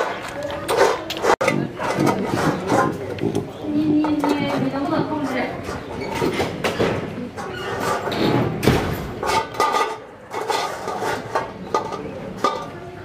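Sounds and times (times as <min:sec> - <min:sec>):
metal bowl scraping on brick: 0:00.0 - 0:03.2, 0:07.2 - 0:08.4, 0:09.2 - 0:12.8.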